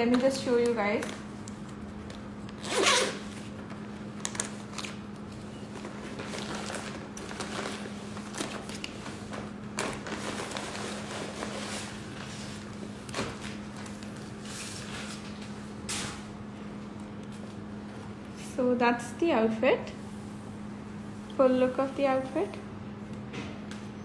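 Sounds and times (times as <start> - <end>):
steady low hum: 0.0 - 24.0
plastic bag crinkling: 4.2 - 9.1, 9.8 - 12.0.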